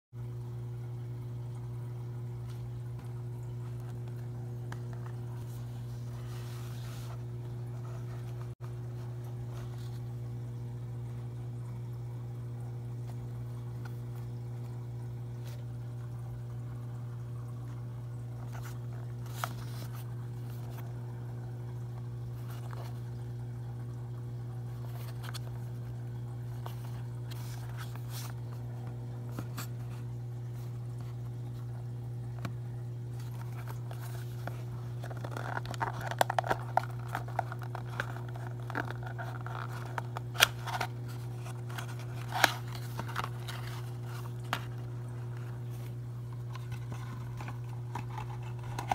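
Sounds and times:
steady low hum: 0:00.2 - 0:48.9
cardboard box crinkling: 0:18.5 - 0:20.8, 0:33.1 - 0:48.9.

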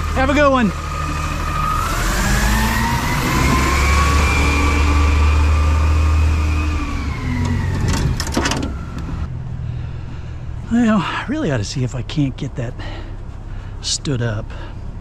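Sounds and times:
garbage truck engine whining: 0:00.0 - 0:10.6.

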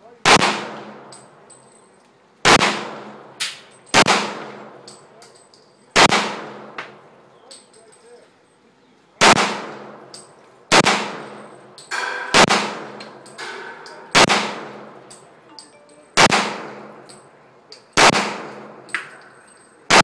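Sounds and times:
pistol shots with echo: 0:00.2 - 0:01.4, 0:02.4 - 0:05.0, 0:05.9 - 0:07.0, 0:09.2 - 0:17.3, 0:17.9 - 0:20.0
faint ringing clink: 0:01.0 - 0:02.2, 0:04.8 - 0:05.9, 0:07.3 - 0:09.0, 0:15.1 - 0:16.2, 0:19.0 - 0:19.9.

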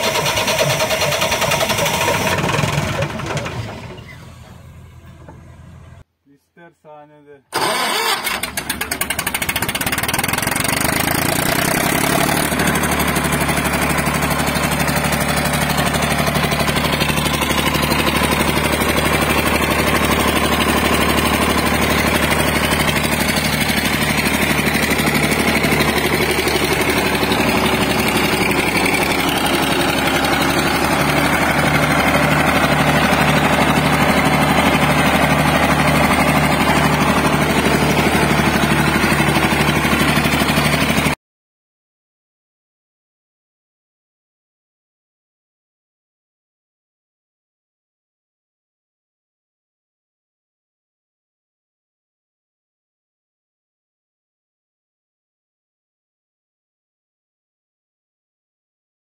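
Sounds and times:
diesel generator running: 0:00.0 - 0:06.0, 0:07.5 - 0:41.2.

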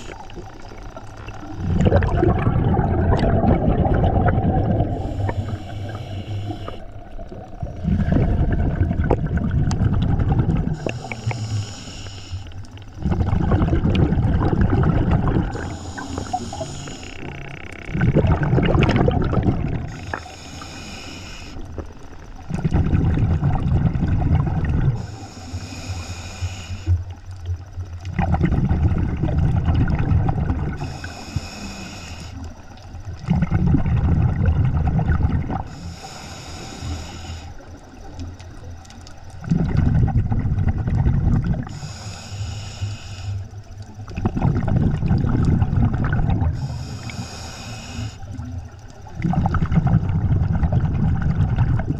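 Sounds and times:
exhaled bubbles underwater: 0:00.0 - 0:51.9
regulator hissing inhale: 0:04.8 - 0:07.0, 0:10.7 - 0:12.9, 0:15.5 - 0:17.6, 0:19.8 - 0:22.0, 0:24.9 - 0:27.2, 0:30.8 - 0:33.0, 0:35.6 - 0:38.0, 0:41.6 - 0:43.8, 0:46.5 - 0:48.5.

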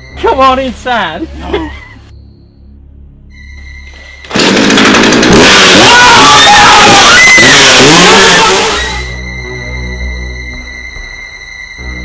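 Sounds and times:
chainsaw running at high revs: 0:04.3 - 0:09.0.

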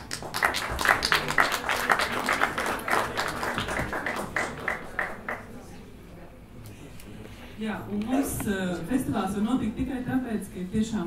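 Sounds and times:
audience applause: 0:00.0 - 0:05.6.

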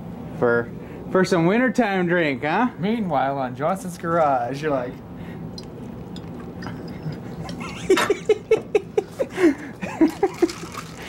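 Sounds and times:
liquid glugging from a bottle: 0:05.5 - 0:08.7, 0:10.0 - 0:11.0.

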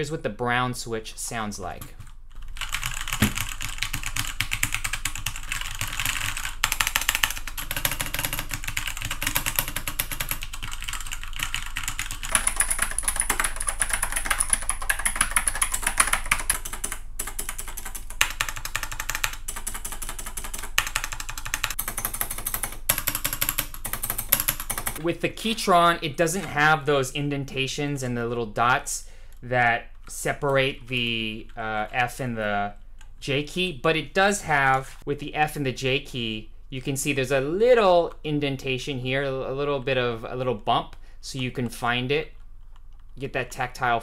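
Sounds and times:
fast typing on mechanical keyboard: 0:01.8 - 0:25.0.

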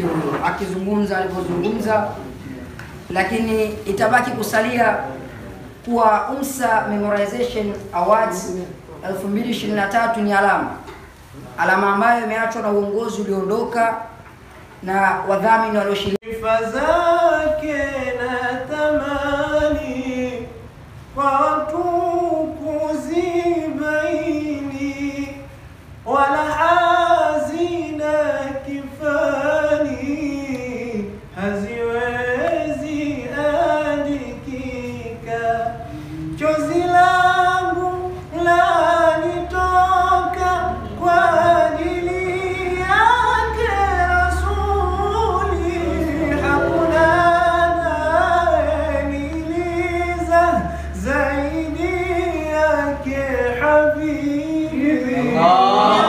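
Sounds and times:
young men singing unaccompanied: 0:15.9 - 0:56.0.

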